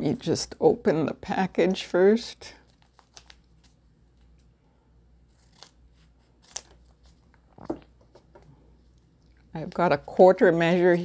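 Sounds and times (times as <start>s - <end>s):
packet crinkling: 2.6s - 4.4s.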